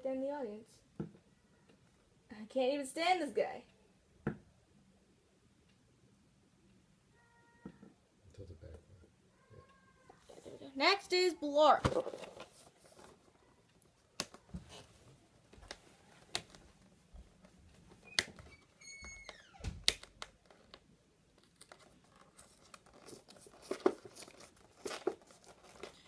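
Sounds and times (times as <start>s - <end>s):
packaging rustling and crinkling: 21.4s - 26.0s.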